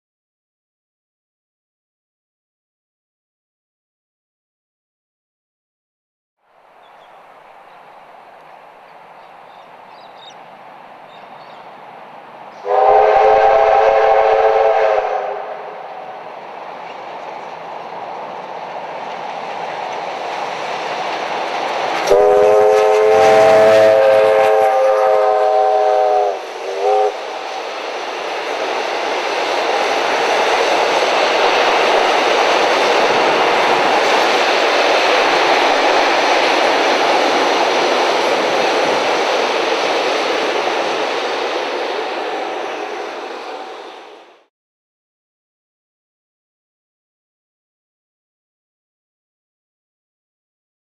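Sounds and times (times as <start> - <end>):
train rumbling across a steel bridge: 6.4 - 44.5
steam locomotive whistle: 12.6 - 16.2, 22.0 - 27.4.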